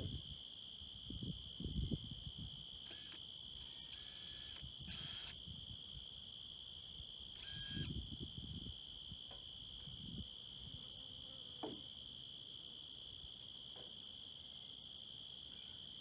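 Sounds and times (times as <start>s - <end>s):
insects droning: 0.0s - 16.0s
power tool bursts: 2.9s - 5.4s.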